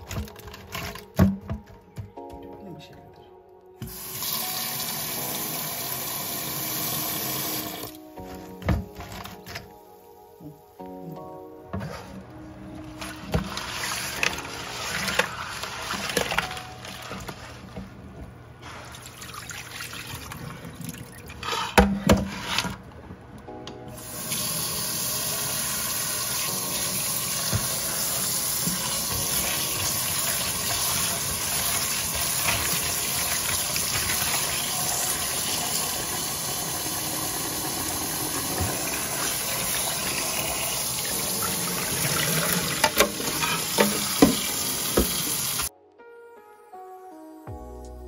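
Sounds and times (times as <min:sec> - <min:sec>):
hand rinsing crabs in water: 0:13.0 - 0:17.7, 0:26.8 - 0:36.0
tap water running into metal pot: 0:24.1 - 0:45.7.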